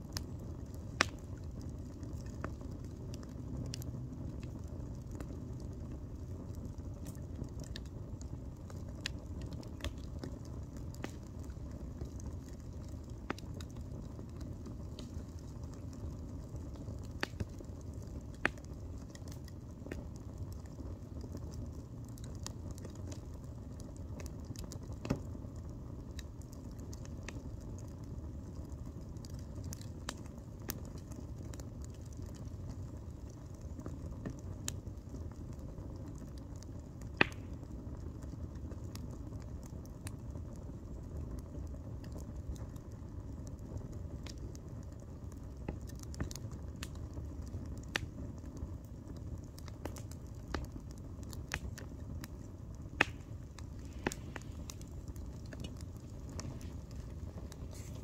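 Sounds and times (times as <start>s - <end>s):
campfire crackling: 0.0s - 58.0s
sharp pops of fire: 0.2s - 5.4s, 7.0s - 20.5s, 24.1s - 25.4s, 35.5s - 40.2s, 44.2s - 58.0s
steady low rumble: 46.3s - 58.0s.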